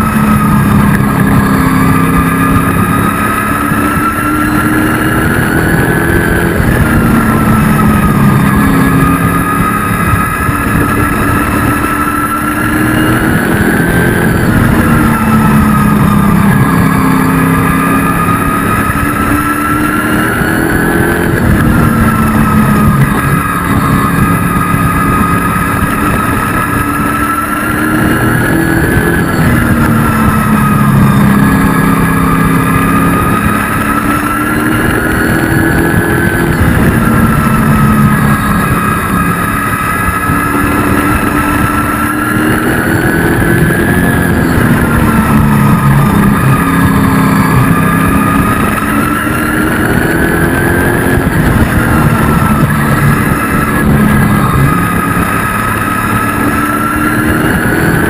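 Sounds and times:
race truck engine: 0.0 - 58.0.

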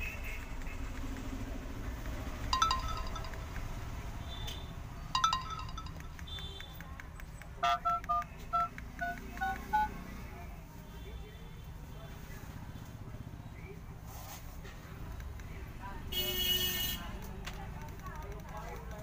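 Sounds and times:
phone chimes: 2.5 - 3.5, 5.2 - 6.2, 7.6 - 10.0
phone keypad dialling beeps: 5.2 - 6.1, 7.6 - 10.0.

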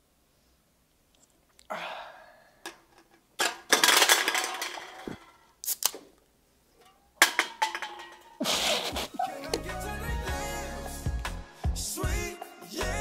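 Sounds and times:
empty cans clattering: 2.6 - 5.4, 6.8 - 8.7.

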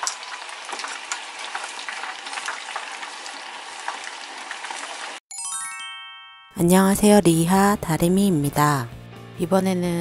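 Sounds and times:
food deep-frying in oil: 0.0 - 5.2.

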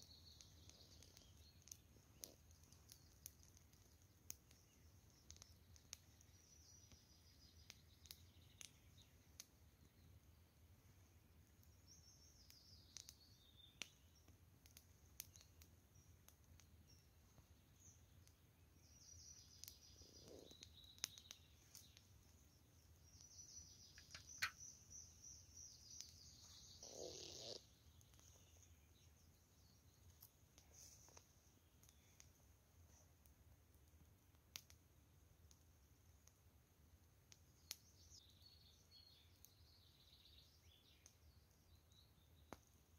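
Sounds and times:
songbird trills and chirps: 0.0 - 32.4, 37.3 - 42.9
campfire crackling: 0.0 - 42.9.

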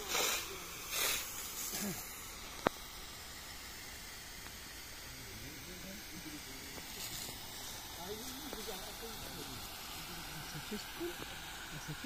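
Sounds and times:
faint voices: 0.0 - 2.3, 4.8 - 12.0
water jetting from fire hose: 0.0 - 12.0.

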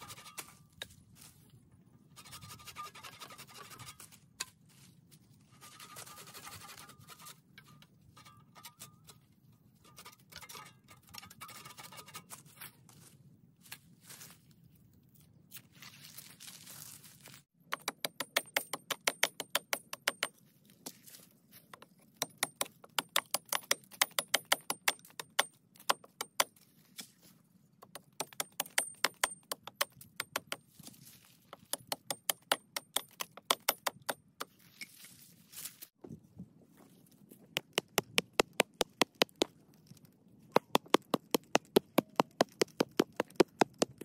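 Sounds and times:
machete chopping wood: 40.5 - 44.0.

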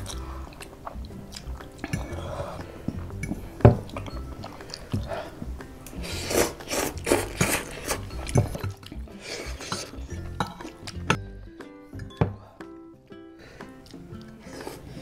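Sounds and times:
chewing: 0.0 - 11.2, 13.6 - 15.0
loud noodle slurps: 6.0 - 8.1.

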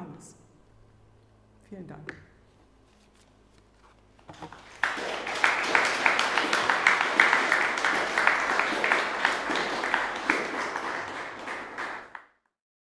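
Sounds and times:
audience applauding: 4.3 - 12.3.

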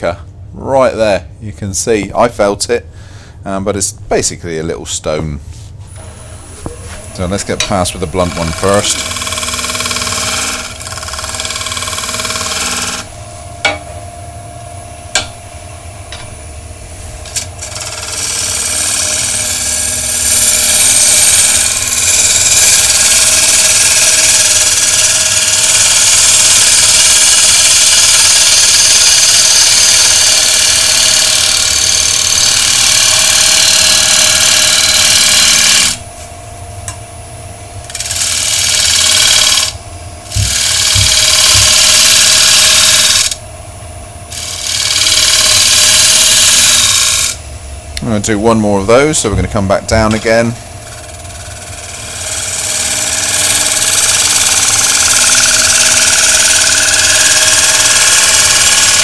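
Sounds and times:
rough lathe cutting noise: 5.9 - 13.8, 17.2 - 36.0, 37.8 - 43.4, 44.3 - 47.4, 48.0 - 59.0
lathe tool tapping wood: 6.6 - 13.9, 15.1 - 15.4, 17.3 - 36.0, 40.3 - 43.4, 49.2 - 59.0.

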